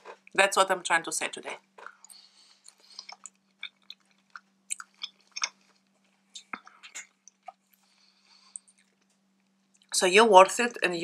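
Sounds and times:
person chewing salad: 1.8s - 9.9s.

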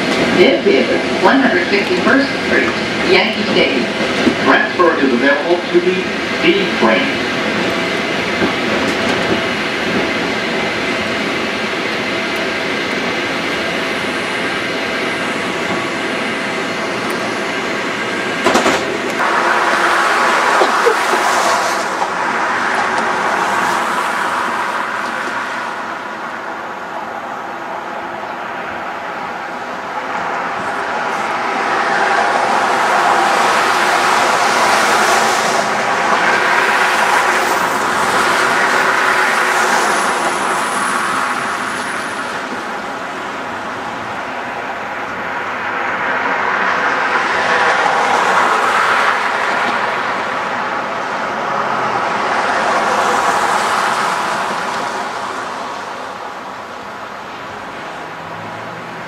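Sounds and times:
cars driving past: 19.1s - 26.5s, 45.7s - 56.7s, 57.9s - 59.0s.

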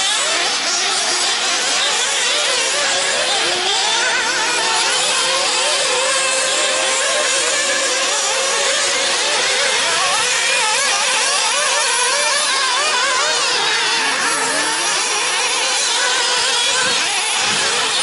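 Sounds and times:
rc buggy engines revving: 0.0s - 18.0s.

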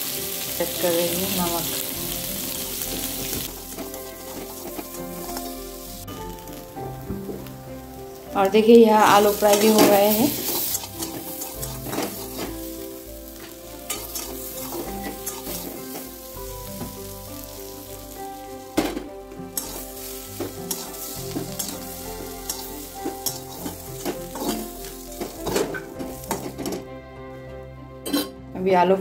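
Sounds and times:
potatoes sizzling in oil: 0.0s - 26.8s
metal spatula scraping a pan: 9.0s - 17.0s, 18.8s - 26.8s.

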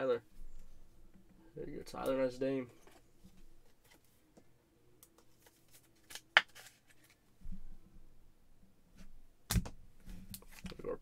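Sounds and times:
soft rustling of card: 1.9s - 7.6s, 10.0s - 11.0s.

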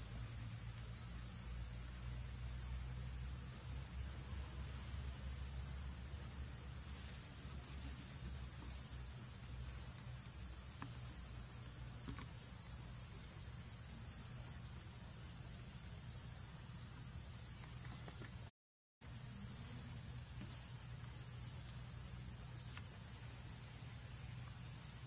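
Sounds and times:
insects droning and chirping: 0.0s - 25.0s.

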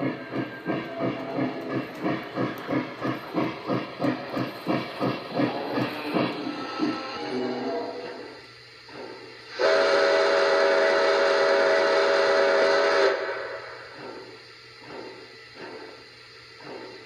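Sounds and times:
model train steam whistle: 9.5s - 13.9s.

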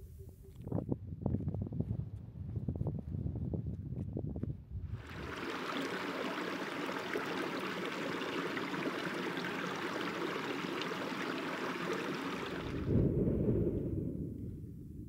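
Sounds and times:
stream running: 5.0s - 12.9s.

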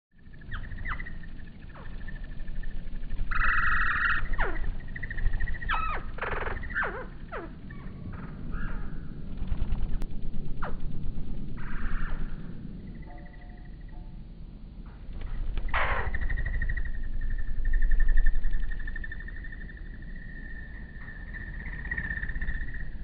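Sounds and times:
drawn-out descending chirps: 0.2s - 9.3s, 10.6s - 14.3s
low pulsing wing hum: 0.2s - 23.0s.

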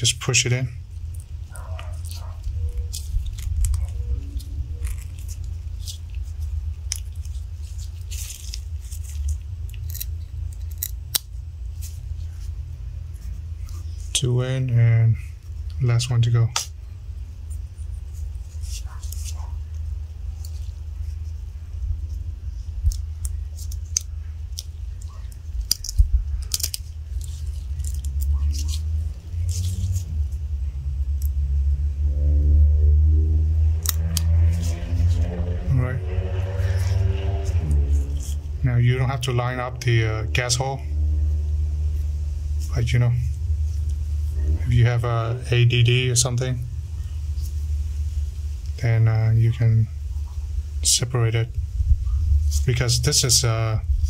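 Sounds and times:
low hum: 0.0s - 54.0s
metallic clicks and scrapes: 22.8s - 30.4s, 33.6s - 40.6s.

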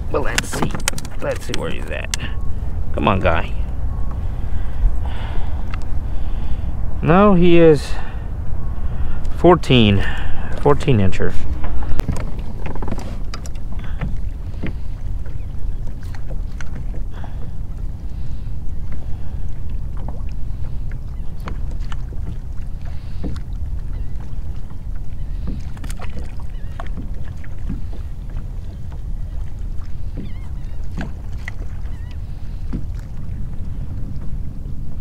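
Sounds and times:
water lapping against plastic hull: 0.0s - 6.7s, 10.0s - 35.0s
wind rumble on microphone: 0.0s - 35.0s.

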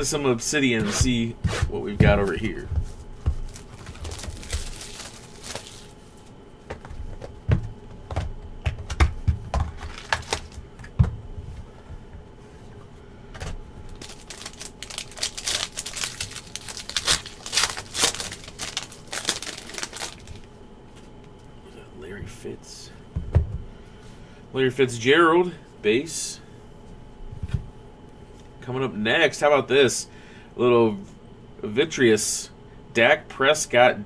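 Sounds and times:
foil wrapper crinkling and tearing: 3.4s - 6.0s, 9.7s - 10.6s, 13.9s - 20.5s.

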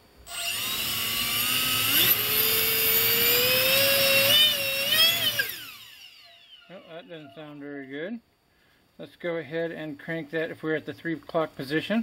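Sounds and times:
electric fan high whine: 0.0s - 8.2s.

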